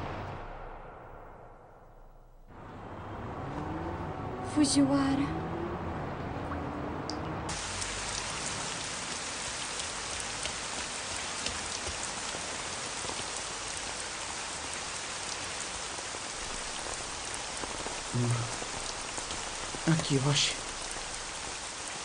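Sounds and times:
raindrops ticking: 6.4 - 22.0
steady rain hiss: 7.5 - 22.0.

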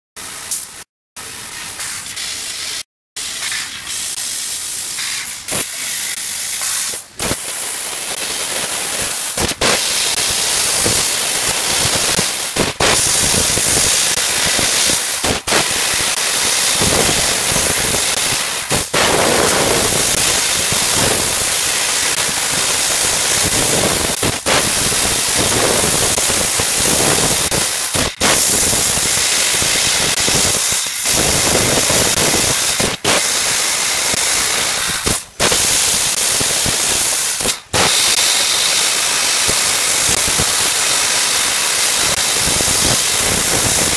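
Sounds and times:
loud hiss of gas blowing: 1.7 - 43.9.

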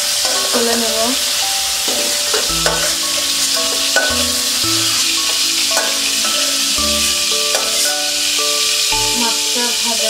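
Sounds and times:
shrimp sizzling in hot oil: 0.0 - 10.0
metal spoon clinking: 0.2 - 8.8
background music with bass: 2.5 - 9.3.

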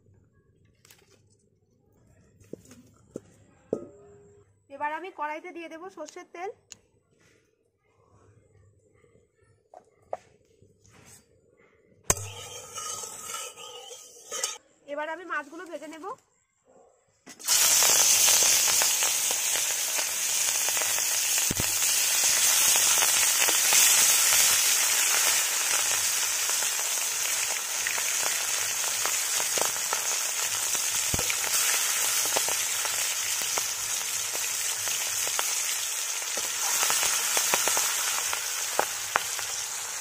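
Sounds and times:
crackling pops: 17.4 - 39.6
fish frying in oil: 17.4 - 40.0.

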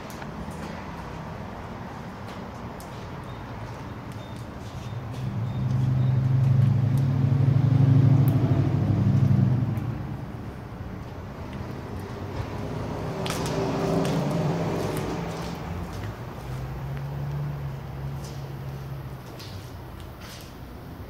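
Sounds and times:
car engine revving: 5.4 - 10.3, 12.0 - 18.2.

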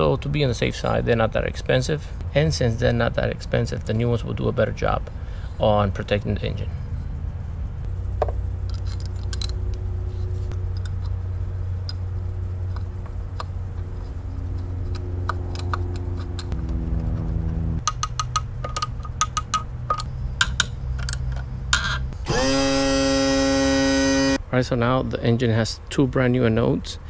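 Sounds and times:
steady low hum: 0.0 - 27.0
socket ratchet clicking: 14.9 - 17.2, 17.8 - 21.4.

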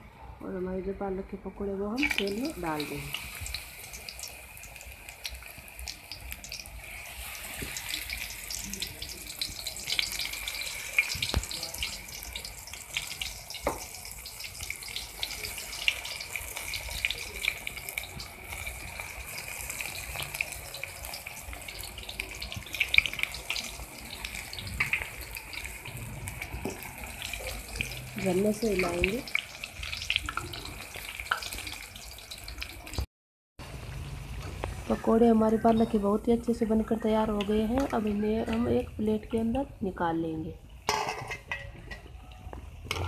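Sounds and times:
food sizzling in hot oil: 1.9 - 33.1
oil crackling and popping: 2.0 - 33.1.

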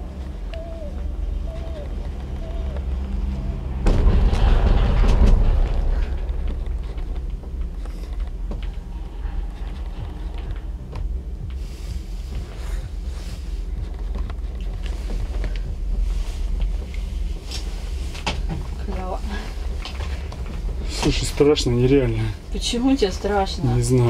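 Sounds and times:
chairlift low rumble: 0.0 - 24.0
chair creaking and ticking: 4.5 - 22.2.

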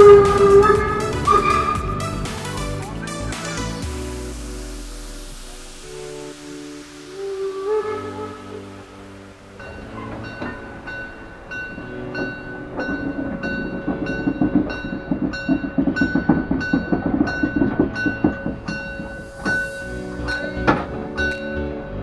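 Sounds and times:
steam locomotive wheels clattering: 0.0 - 2.8, 9.6 - 21.7
background music with steady beat: 0.0 - 22.0.

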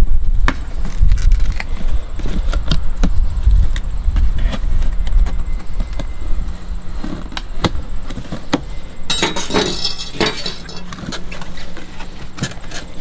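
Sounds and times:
cardboard and tape tearing: 0.9 - 1.7
knife clinking on glass: 9.1 - 11.0.

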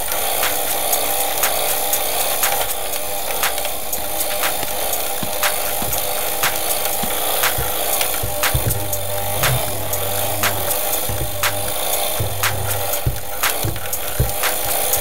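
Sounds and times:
electric hand mixer whining: 3.5 - 15.0.

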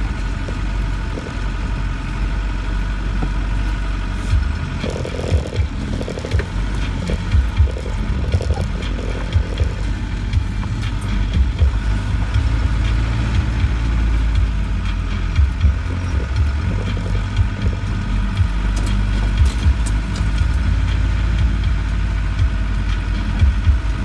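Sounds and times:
vehicle engine running: 0.0 - 24.0
vehicle knocks and thuds: 4.4 - 13.8.

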